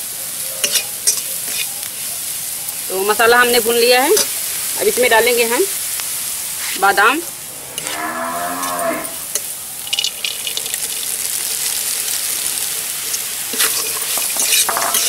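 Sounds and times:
hot oil sizzling in a wok: 0:00.0 - 0:15.0
cow mooing: 0:07.5 - 0:09.3.

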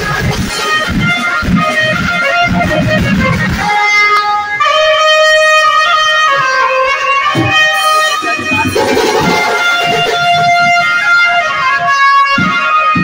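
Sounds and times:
drums beating: 0:00.0 - 0:13.0
melody instrument holding a note: 0:03.7 - 0:13.0.

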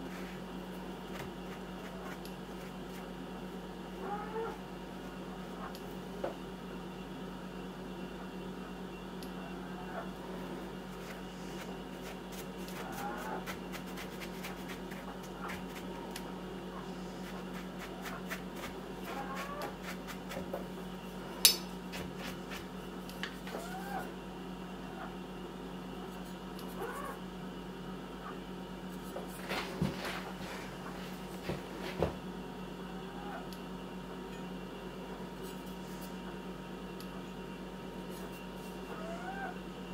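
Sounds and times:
knife and brush scraping: 0:16.8 - 0:20.7, 0:38.1 - 0:38.8.

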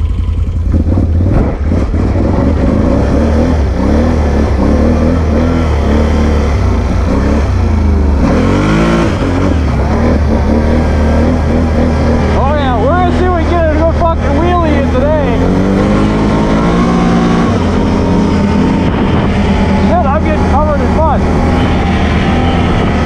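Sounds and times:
engine revving: 0:00.0 - 0:23.0
wind buffeting microphone: 0:15.6 - 0:23.0.

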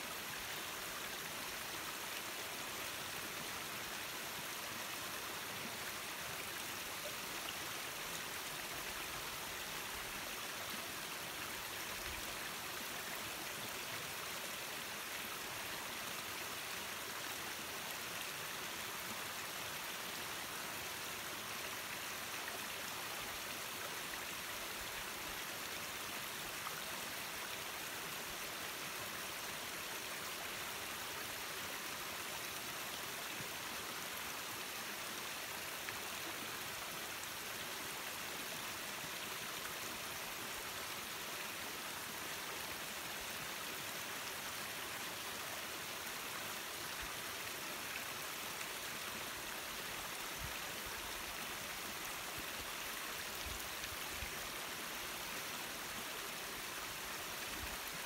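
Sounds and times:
small waterfall splashing: 0:00.0 - 0:58.0.

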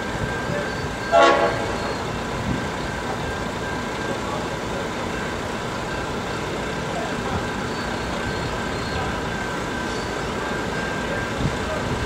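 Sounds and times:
distant road traffic: 0:00.0 - 0:12.0.

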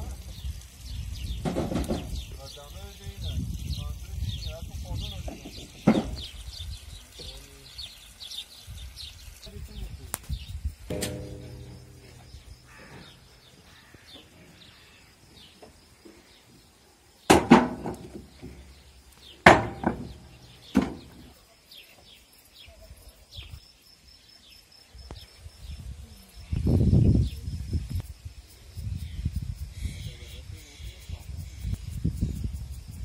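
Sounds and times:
birds chirping: 0:00.1 - 0:23.6
stones clanging on steel: 0:10.9 - 0:13.1.

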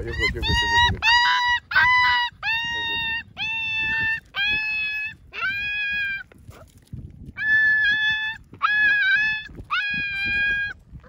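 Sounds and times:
puppy crying: 0:00.0 - 0:06.3, 0:07.4 - 0:10.8.

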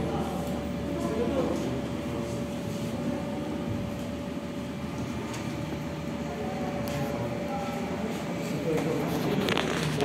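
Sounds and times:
faint murmuring voices: 0:00.0 - 0:10.0
room hum: 0:00.0 - 0:10.0.

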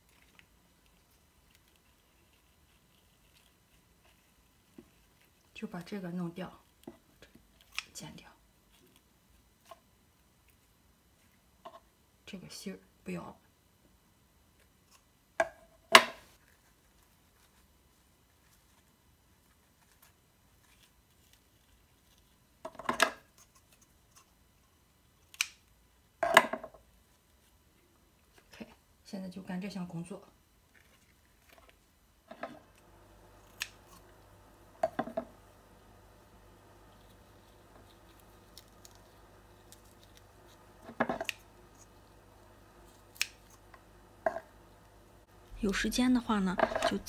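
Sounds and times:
flower petals crackling and snapping: 0:25.3 - 0:25.7, 0:32.7 - 0:47.0.

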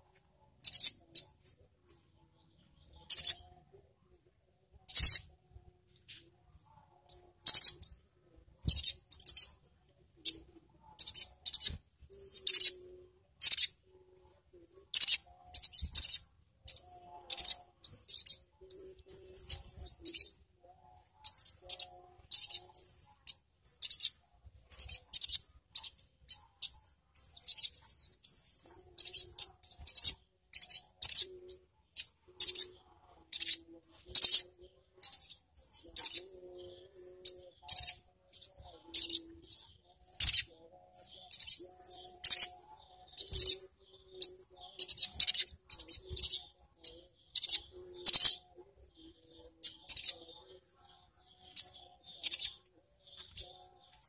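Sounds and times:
bird chirping and trilling: 0:00.6 - 0:01.3, 0:02.4 - 0:03.6, 0:04.9 - 0:05.3, 0:07.0 - 0:08.0, 0:08.6 - 0:09.6, 0:10.2 - 0:13.9, 0:14.9 - 0:20.4, 0:21.0 - 0:54.0.

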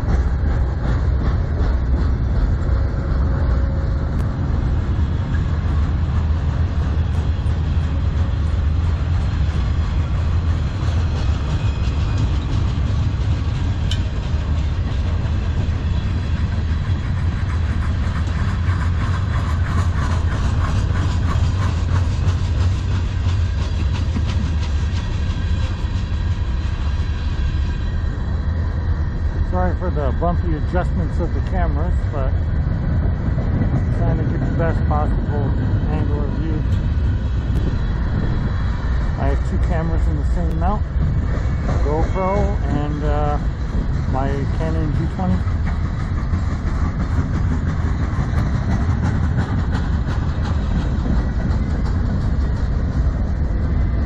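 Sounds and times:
wheels clicking over rail joints: 0:05.3 - 0:26.5, 0:39.0 - 0:54.0.

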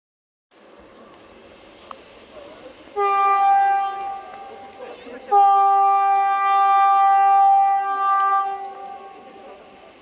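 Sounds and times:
locomotive horn blast: 0:02.9 - 0:09.4.

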